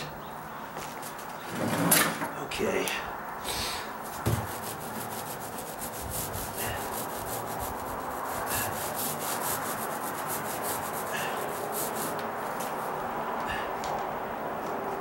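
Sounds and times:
paint roller rolling on wood: 0:00.8 - 0:02.2, 0:04.0 - 0:13.2.

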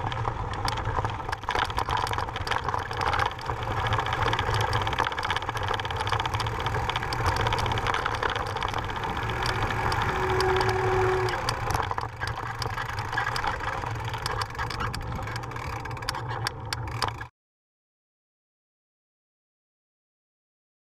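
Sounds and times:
tyres crunching on gravel: 0:00.0 - 0:14.8
bike rattles: 0:00.0 - 0:17.3
wind rumble on microphone: 0:00.0 - 0:17.3
brief steady squeal: 0:09.8 - 0:11.7.

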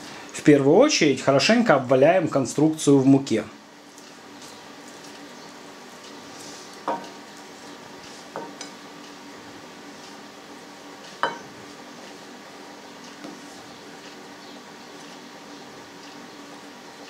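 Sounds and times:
hands rubbing and patting flour: 0:03.8 - 0:08.6
sharp clinks against a plate: 0:11.2 - 0:11.5.

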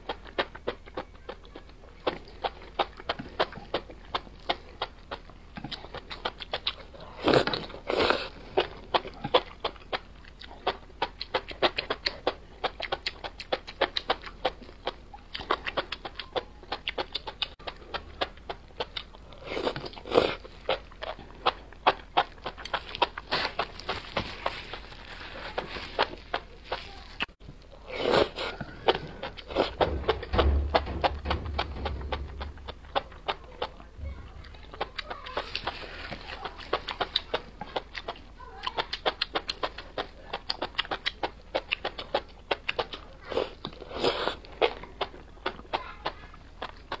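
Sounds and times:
wet chewing clicks: 0:00.0 - 0:47.0
low rumble: 0:29.8 - 0:33.1.

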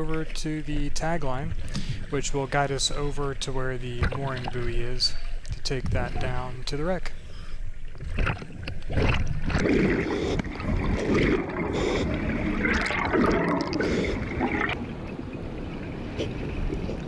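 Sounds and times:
water sloshing: 0:00.0 - 0:17.0
regulator bubbles gurgling: 0:07.8 - 0:17.0.

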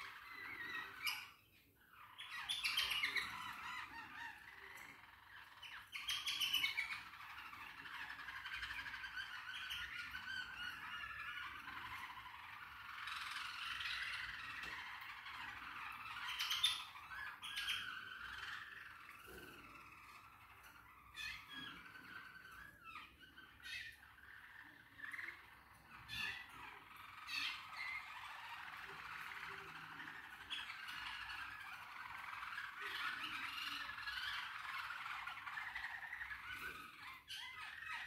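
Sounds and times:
cage birds chattering and squawking: 0:00.0 - 0:38.0.

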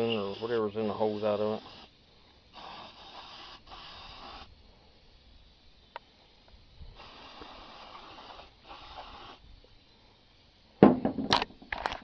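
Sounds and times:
aerosol spray bursts: 0:00.0 - 0:04.6, 0:06.9 - 0:09.6
loud knock: 0:10.8 - 0:11.4.

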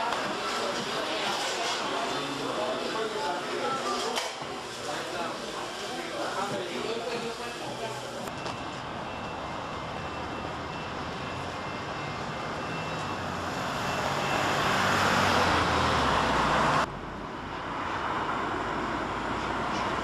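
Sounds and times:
vehicle rushing past: 0:13.1 - 0:20.0.

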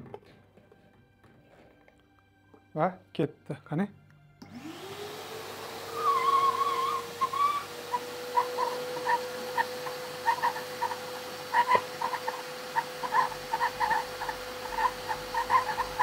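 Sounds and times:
vacuum cleaner motor whine: 0:04.4 - 0:16.0.

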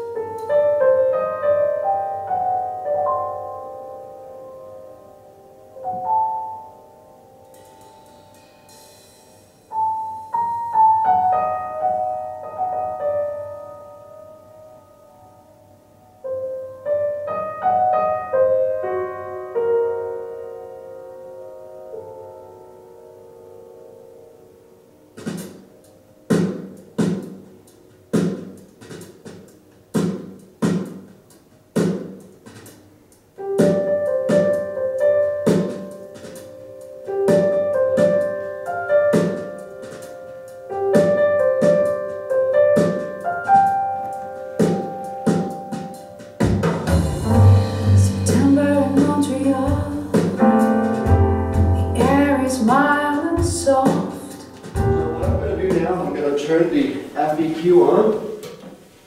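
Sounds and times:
solo piano music: 0:00.0 - 0:28.2, 0:33.3 - 0:56.4
drum hits: 0:25.2 - 0:25.7, 0:26.3 - 0:27.5, 0:28.2 - 0:31.1, 0:31.8 - 0:32.8, 0:44.6 - 0:56.5.

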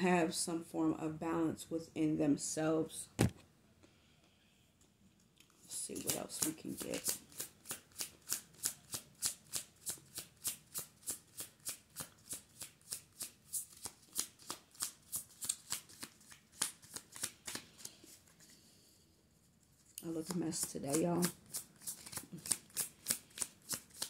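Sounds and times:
cards being shuffled: 0:05.4 - 0:18.5, 0:19.8 - 0:24.0.

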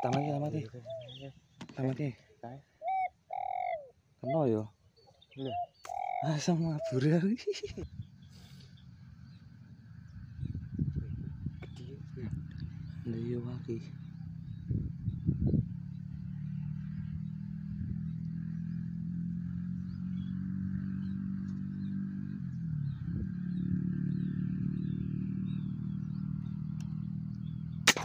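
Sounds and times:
low engine hum: 0:06.8 - 0:28.0.

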